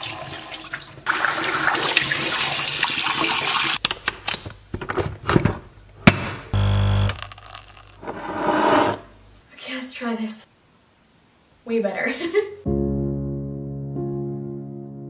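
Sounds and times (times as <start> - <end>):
coffee machine pump buzzing: 6.6 - 7.4.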